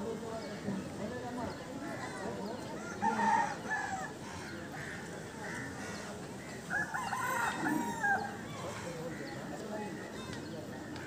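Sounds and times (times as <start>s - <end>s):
rooster crowing: 6.7s - 8.4s.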